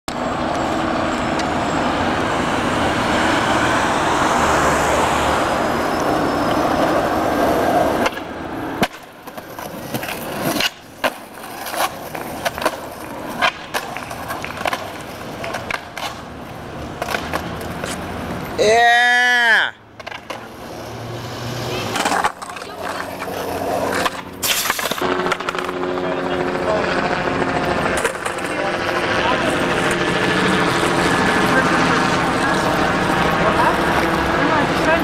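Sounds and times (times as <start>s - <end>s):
skateboard wheels rolling on pavement: 0.1s - 35.0s
skateboards clacking on ground: 6.5s - 20.9s, 21.5s - 25.8s, 27.5s - 35.0s.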